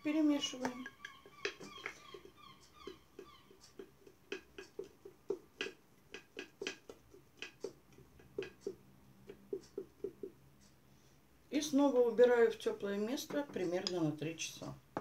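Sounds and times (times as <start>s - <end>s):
stick ticking against glass: 0.5s - 10.4s
soft wet stirring strokes: 0.8s - 11.5s.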